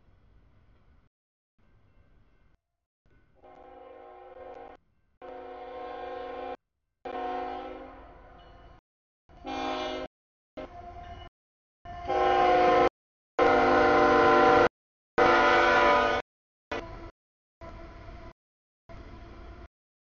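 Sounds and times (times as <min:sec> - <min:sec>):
locomotive air horn blasts: 0:03.4 - 0:08.0, 0:09.4 - 0:10.1, 0:11.9 - 0:16.9.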